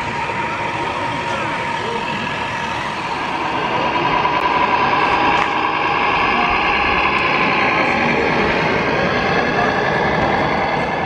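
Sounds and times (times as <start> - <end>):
model trucks whirring and whining: 0.0 - 11.0.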